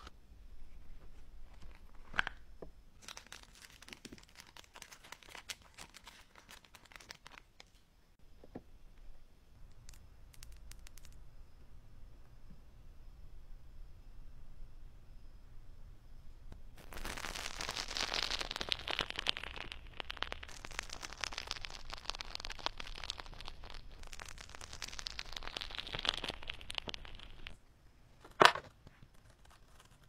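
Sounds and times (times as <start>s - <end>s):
fingers squishing crackling slime: 3.0s - 7.8s, 16.8s - 27.6s.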